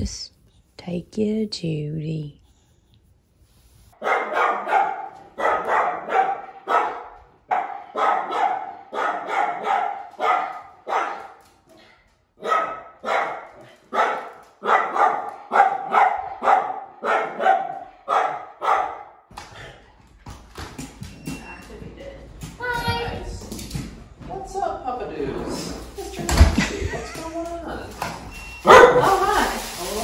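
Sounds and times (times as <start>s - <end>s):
dog barking excitedly: 4.0s - 11.6s, 12.4s - 19.2s, 28.6s - 29.4s.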